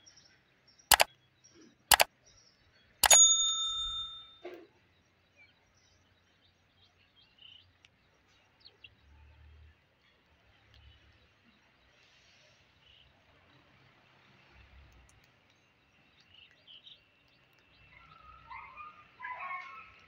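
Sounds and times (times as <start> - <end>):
bright bell ding: 3.0 - 4.4.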